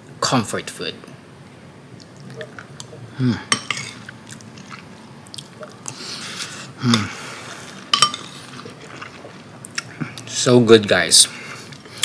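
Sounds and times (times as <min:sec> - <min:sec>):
wet mouth clicks: 0:02.0 - 0:03.0
person chewing food: 0:03.7 - 0:10.3.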